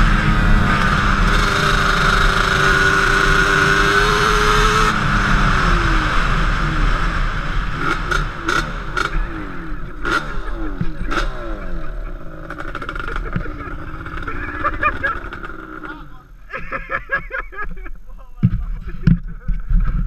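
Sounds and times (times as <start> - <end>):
quad engine revving: 0.0 - 16.3.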